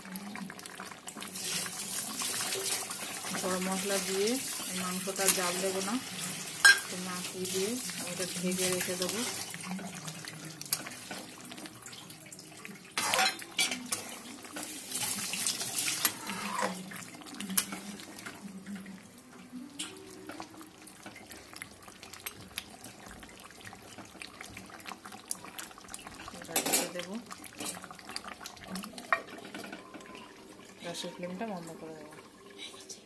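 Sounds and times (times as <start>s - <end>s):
curry simmering in a pot: 0.0s - 33.0s
spoon stirring against metal pot: 2.3s - 11.5s, 13.0s - 18.5s.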